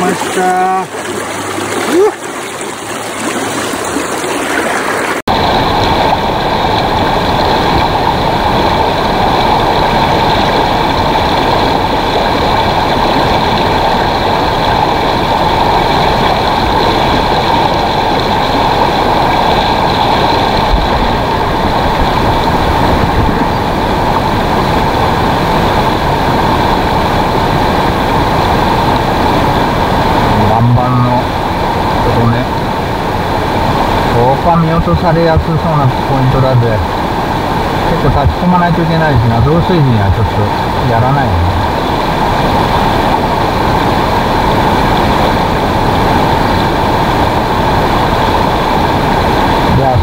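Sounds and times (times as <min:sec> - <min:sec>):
water breaking around legs: 0:00.0 - 0:05.2
rushing river rapids: 0:00.0 - 0:50.0.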